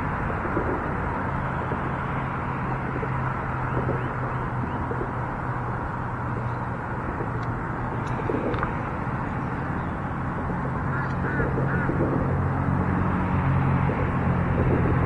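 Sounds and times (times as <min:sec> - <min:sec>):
traffic rumble overhead: 0:00.0 - 0:15.0
waterfowl honking: 0:10.8 - 0:12.0.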